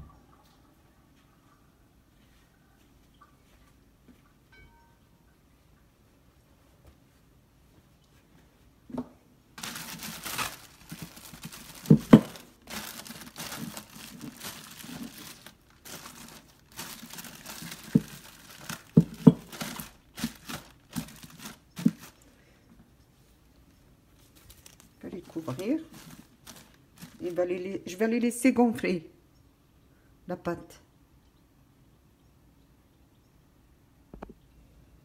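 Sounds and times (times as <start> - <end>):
plastic bag crinkling: 9.6 - 22.3, 24.2 - 27.8.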